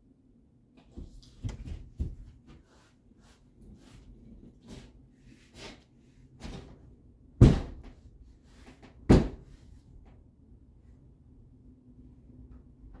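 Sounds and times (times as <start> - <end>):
loud bangs on plywood wall: 7.4 - 7.9, 9.1 - 9.5.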